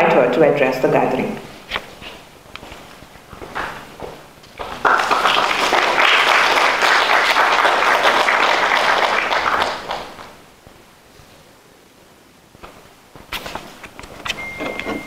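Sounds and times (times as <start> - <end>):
audience applauding: 4.6 - 10.4.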